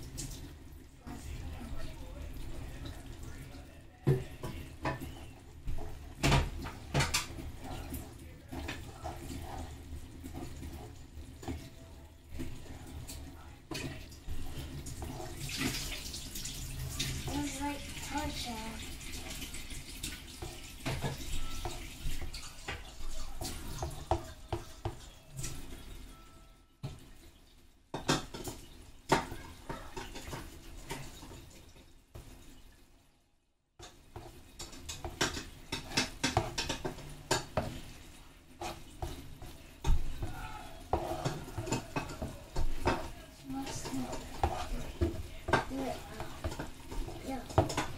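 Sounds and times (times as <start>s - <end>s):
metal utensils clinking on pan: 33.8s - 37.9s, 38.6s - 47.9s.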